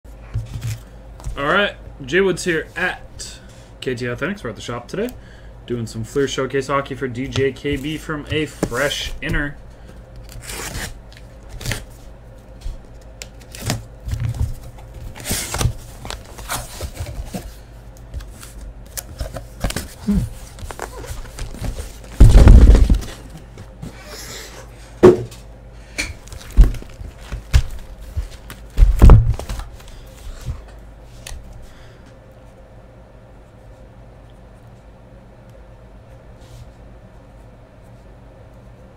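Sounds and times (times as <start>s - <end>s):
tape being slit and torn: 10.2s - 11.9s
cardboard rustling and knocking: 19.2s - 23.3s, 26.3s - 29.7s
box set down thumps: 25.0s - 25.4s.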